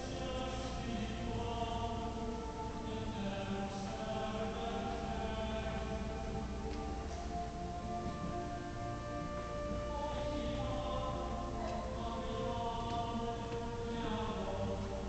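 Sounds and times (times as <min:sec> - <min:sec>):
choir chanting slowly: 0:00.0 - 0:15.0.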